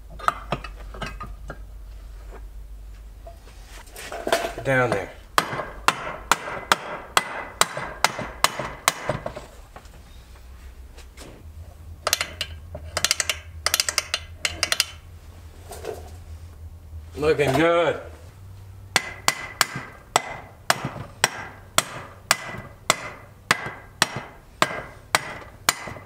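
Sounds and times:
mallet tapping metal: 5.4s - 9.2s, 18.9s - 26.0s.

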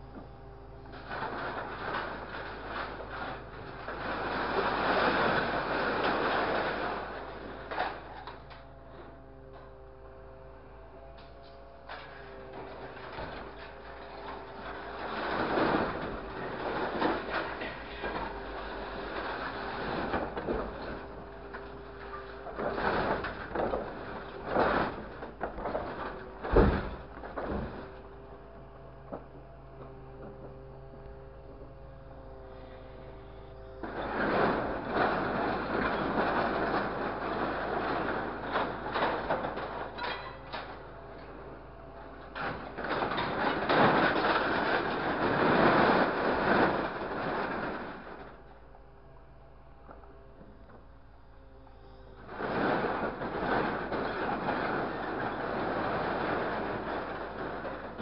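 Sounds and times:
scrap metal clattering and scraping: 0.0s - 9.8s, 10.8s - 49.3s, 49.9s - 58.0s
steady machine hum: 0.0s - 58.0s
sheet metal clattering into container: 33.8s - 40.8s
loud metal crashes: 33.8s - 41.4s, 42.2s - 48.4s.

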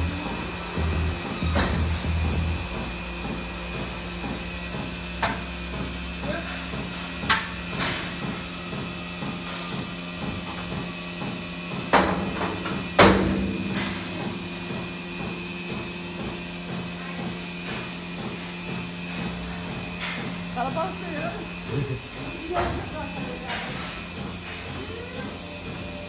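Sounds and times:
milking machine hum and pulsing: 0.0s - 26.0s
loud metallic clanks: 12.5s - 14.7s.

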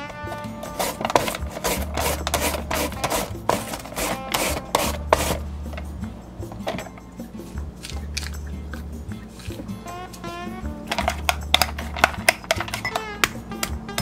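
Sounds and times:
carrot scraping on mandoline slicer: 0.0s - 5.9s, 7.8s - 11.2s.

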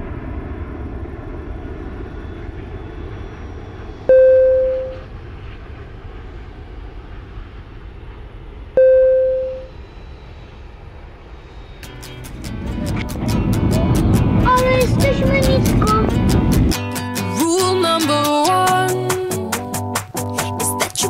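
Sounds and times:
jet airliner noise: 0.0s - 21.0s
single-tone cabin chime: 4.1s - 5.0s, 8.8s - 9.7s.

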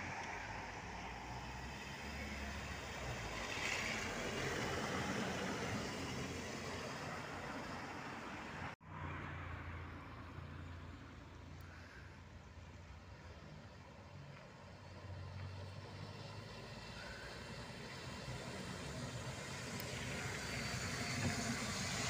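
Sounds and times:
tyres hissing on wet street: 0.0s - 8.8s, 11.6s - 22.0s
low traffic rumble: 0.0s - 22.0s
minibus driving past: 12.5s - 22.0s.

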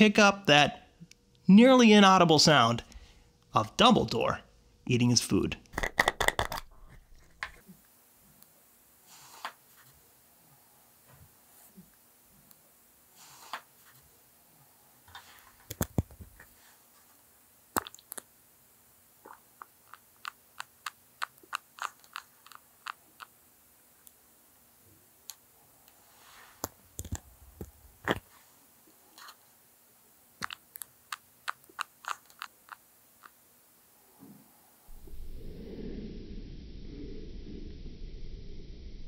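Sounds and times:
fish crunching food pellets: 5.7s - 7.6s, 19.2s - 23.4s, 30.4s - 33.3s.

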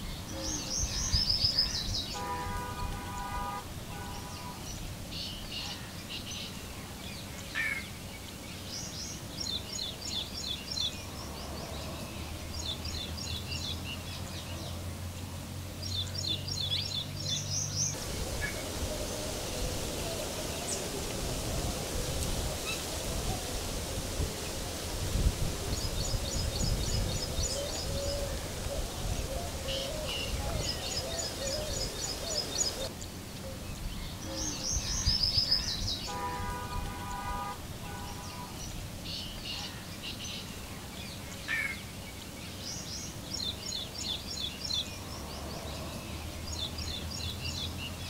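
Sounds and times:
steady hiss with low rumble: 0.0s - 48.0s
lower bird call: 16.0s - 32.9s
birds singing trilled phrases: 25.7s - 45.0s.

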